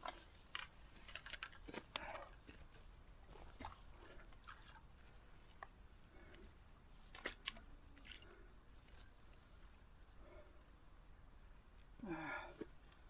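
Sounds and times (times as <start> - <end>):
fishing tackle clicks and rustles: 0.0 - 5.8.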